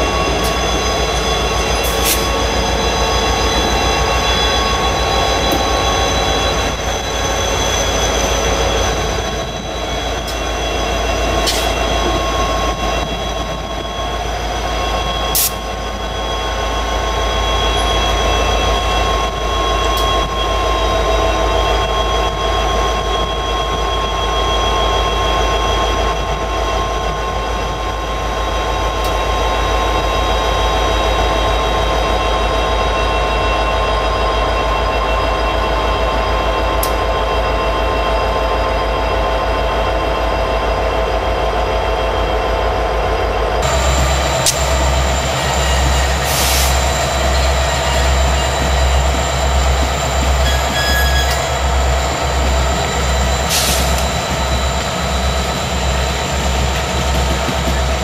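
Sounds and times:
diesel locomotives running slowly: 0.0s - 58.0s
wheels squealing: 43.6s - 58.0s.

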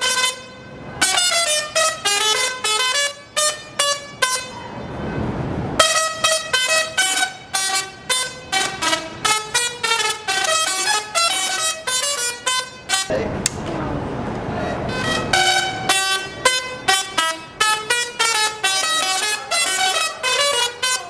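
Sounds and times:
tesla coil playing buzzy notes: 5.8s - 13.1s, 14.9s - 21.0s.

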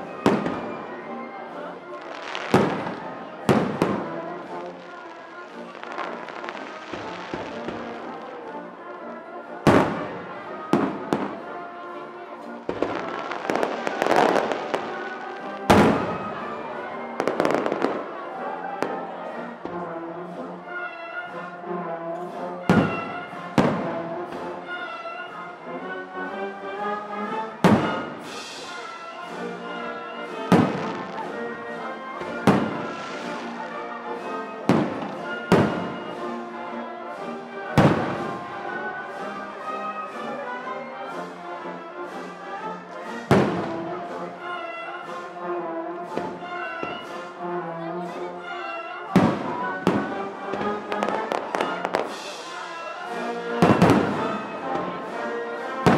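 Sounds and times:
orchestral music with brass: 0.0s - 55.9s
fireworks bursting: 1.9s - 8.4s, 12.7s - 16.5s, 27.6s - 29.0s, 32.2s - 33.7s, 34.7s - 36.1s, 49.2s - 54.7s.

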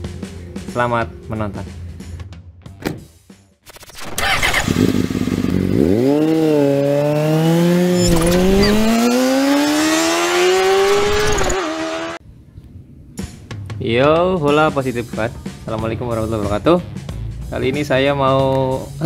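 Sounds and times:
motorcycle engine accelerating: 3.7s - 12.2s.

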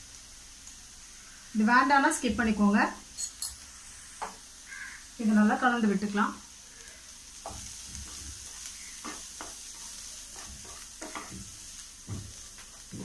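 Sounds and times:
faint sizzle: 0.0s - 13.0s
wooden spatula scraping a pan: 7.4s - 13.0s.

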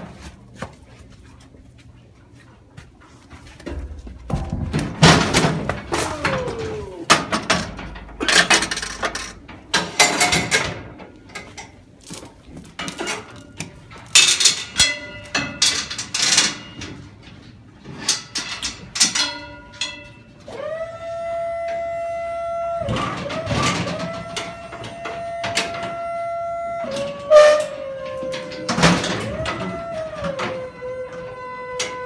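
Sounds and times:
metal gates clanking: 3.7s - 11.8s, 12.8s - 17.1s, 18.0s - 20.3s
hanging chains rattling: 3.7s - 12.2s, 12.8s - 17.0s, 18.0s - 20.2s.

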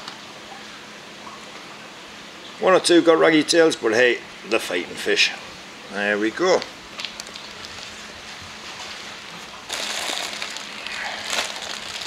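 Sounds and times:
plastic bag rustling: 9.7s - 12.0s.

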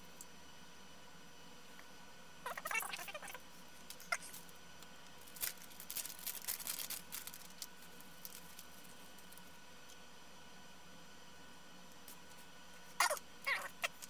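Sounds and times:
plastic bag crinkling: 5.2s - 9.6s.

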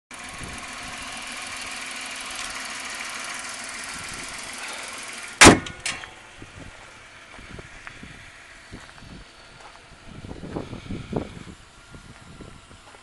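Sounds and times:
car engine idling: 0.1s - 13.0s
car hood slamming shut: 5.4s - 6.1s.

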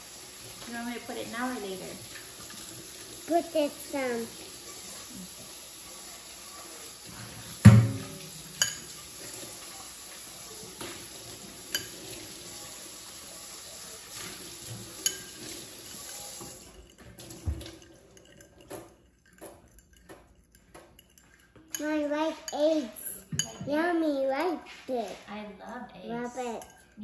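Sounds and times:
fork tapping bowl rim: 7.7s - 8.9s, 18.2s - 21.8s
fork clinking against ceramic bowl: 8.6s - 9.0s, 15.0s - 22.5s, 26.6s - 27.0s.

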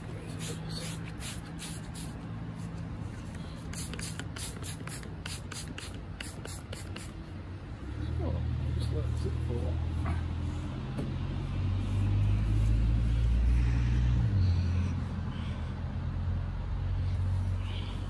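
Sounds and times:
engine humming: 5.8s - 18.0s.

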